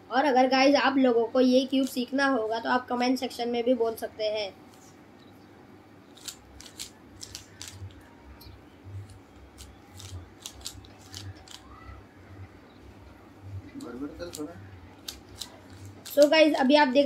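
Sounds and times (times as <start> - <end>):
puzzle cube clicking: 6.2 - 8.0, 9.0 - 11.8, 13.8 - 16.7.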